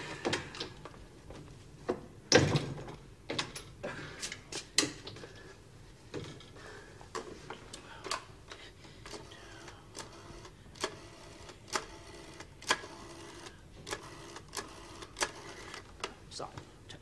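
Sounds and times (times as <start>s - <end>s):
telephone dialling clicks: 10.0s - 15.9s.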